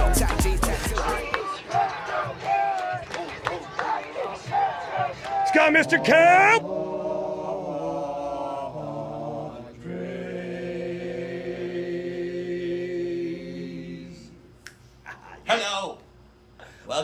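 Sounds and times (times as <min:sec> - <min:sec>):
group of voices chanting: 0:00.0 - 0:14.4.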